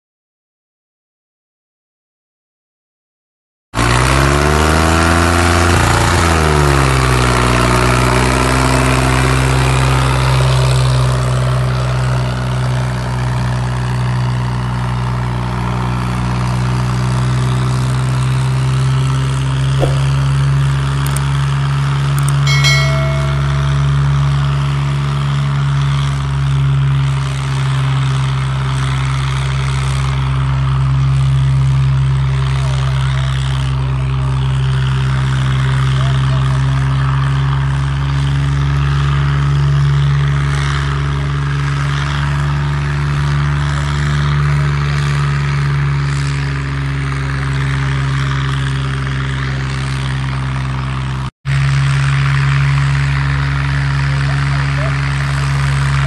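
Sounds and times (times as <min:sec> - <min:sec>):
brief higher-pitched note: 0:19.8 - 0:20.3, 0:22.5 - 0:24.4.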